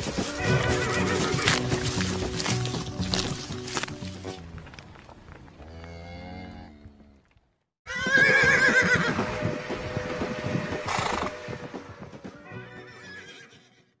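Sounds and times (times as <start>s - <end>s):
horse whinnying: 7.9s - 9.1s, 12.8s - 13.8s.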